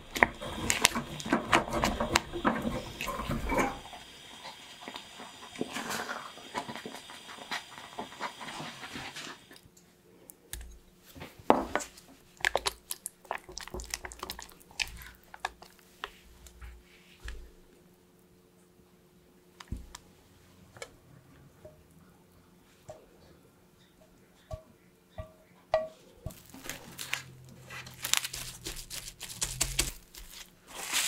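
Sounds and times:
spatula stirring sticky paste: 0:00.0 - 0:03.8, 0:11.7 - 0:17.6, 0:26.3 - 0:31.0
faint steady hiss: 0:00.0 - 0:31.0.

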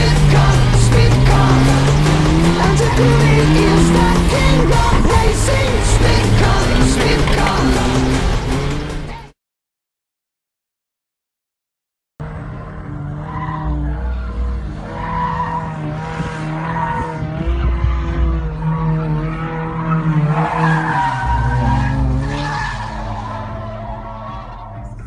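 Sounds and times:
low engine drone: 0:00.0 - 0:09.2
tires squealing: 0:00.0 - 0:09.3, 0:12.2 - 0:25.0.

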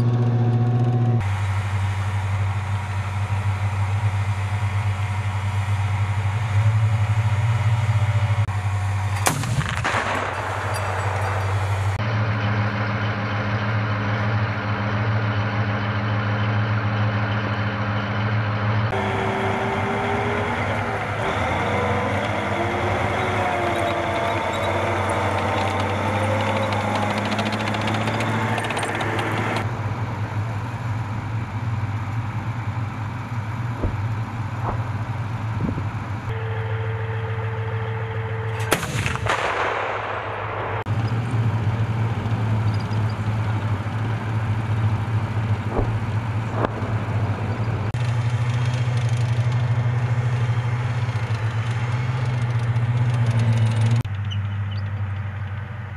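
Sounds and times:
wavering whine: 0:00.0 - 0:39.3, 0:40.0 - 0:50.7
diesel engines idling: 0:00.0 - 0:55.9
gunshots: 0:09.2 - 0:12.0, 0:33.8 - 0:35.1, 0:38.6 - 0:40.9.

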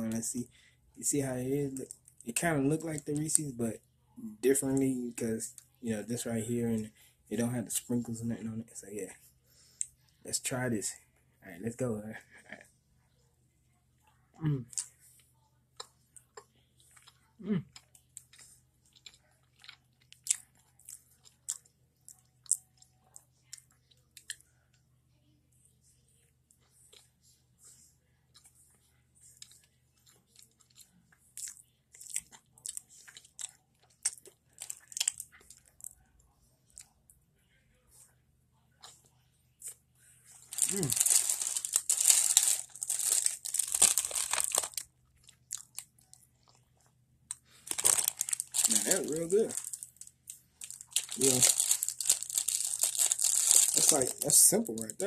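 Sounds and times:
person chewing: 0:15.8 - 0:24.4, 0:29.3 - 0:36.0, 0:38.8 - 0:54.8.

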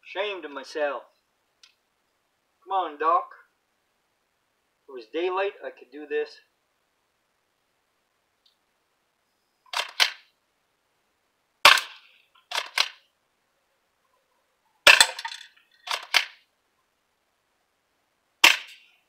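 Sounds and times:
shotgun pump racking clack: 0:14.9 - 0:16.4
airsoft shotgun shot: 0:18.4 - 0:18.8.

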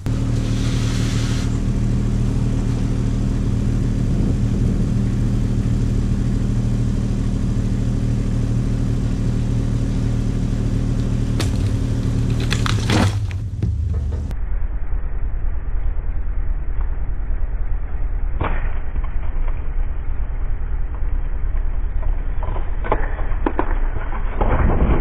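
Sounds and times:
excavator diesel engine running: 0:00.0 - 0:14.3
brief hiss: 0:00.4 - 0:01.6.

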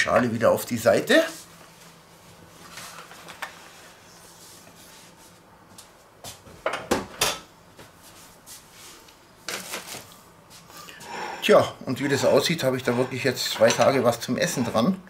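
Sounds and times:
metal dish scraping on wood: 0:11.0 - 0:14.9
metal dish clattering: 0:12.1 - 0:14.8.

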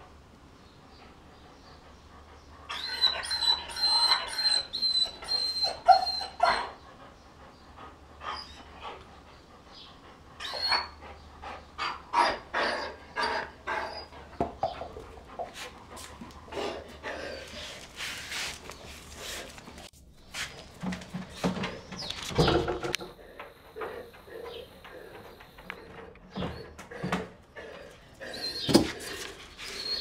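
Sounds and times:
dog whining and whimpering: 0:02.7 - 0:06.8, 0:08.2 - 0:08.8, 0:10.4 - 0:11.0, 0:11.8 - 0:14.9, 0:23.8 - 0:30.0.

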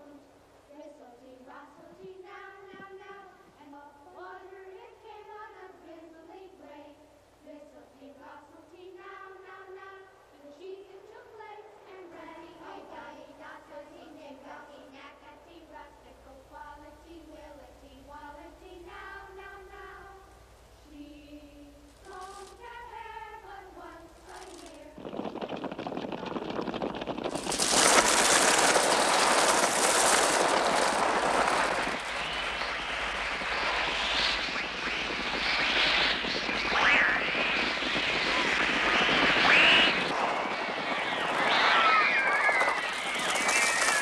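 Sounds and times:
soft voices: 0:00.0 - 0:26.9
bird wingbeats: 0:24.3 - 0:44.0
children screaming: 0:39.3 - 0:44.0
harsh shrieking bird cries: 0:39.4 - 0:40.0.

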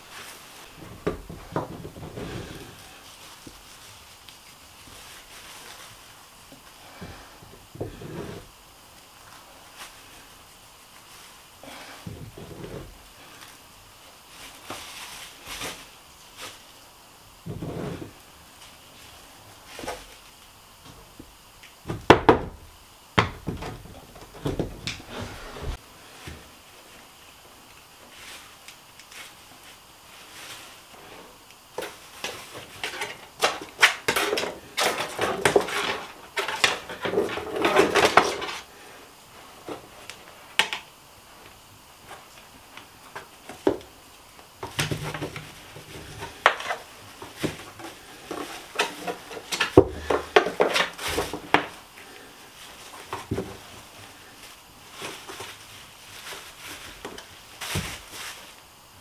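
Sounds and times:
plastic bag crinkling: 0:01.6 - 0:06.4, 0:44.7 - 0:58.9.

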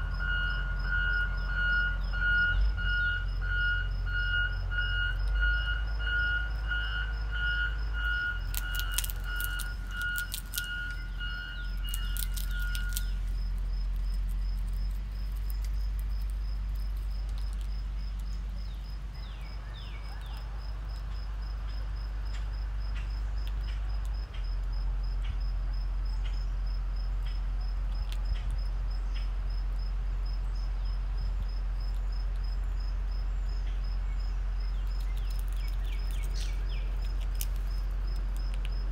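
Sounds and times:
vehicle reversing alarm beeps: 0:00.0 - 0:13.5
low rumble: 0:00.0 - 0:20.1
high insect chirping: 0:00.0 - 0:38.9
squirrel gnawing clicks: 0:08.4 - 0:25.4, 0:27.2 - 0:29.4, 0:30.8 - 0:32.8, 0:34.6 - 0:38.9.

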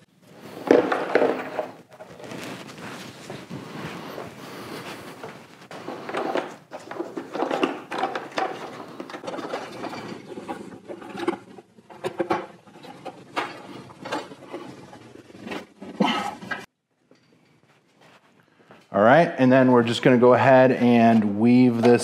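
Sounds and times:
plastic and wiring rustling: 0:00.2 - 0:16.7.

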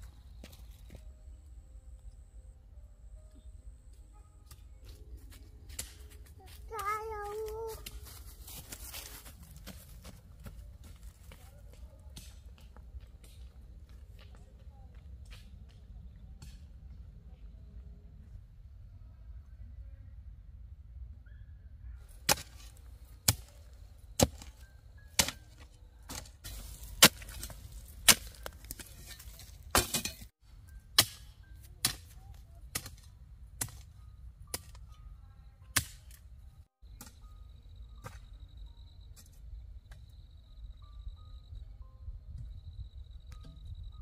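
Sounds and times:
soil scraping: 0:22.1 - 0:30.4
hoe chopping into hard soil: 0:22.2 - 0:23.5, 0:26.1 - 0:30.3
faint insect trill: 0:33.9 - 0:44.0.

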